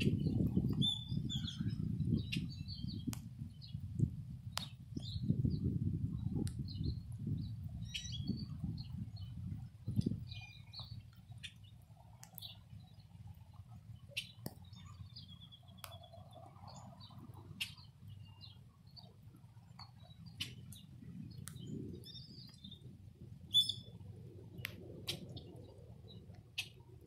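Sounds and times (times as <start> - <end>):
birds chirping: 0.0 - 3.9, 4.5 - 26.8
low background rumble: 0.0 - 27.0.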